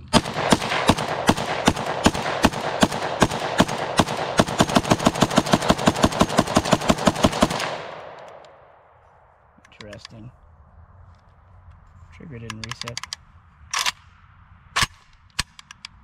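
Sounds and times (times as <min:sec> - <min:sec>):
rifle firing rapid shots: 0:00.0 - 0:08.5
gunshot echo: 0:00.0 - 0:08.8.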